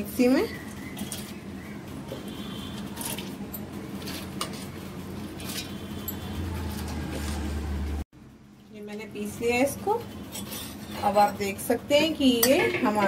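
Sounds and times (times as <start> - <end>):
spoon scraping steel: 2.3 - 7.5, 10.0 - 11.5.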